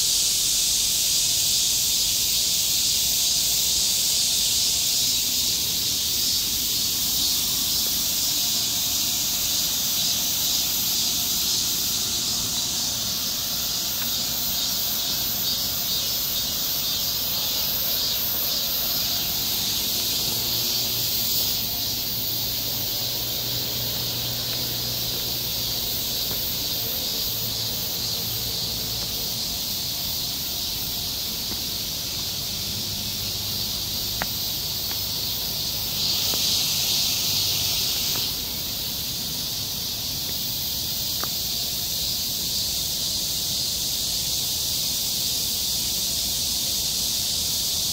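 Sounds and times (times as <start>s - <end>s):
insects buzzing: 0.0s - 47.9s.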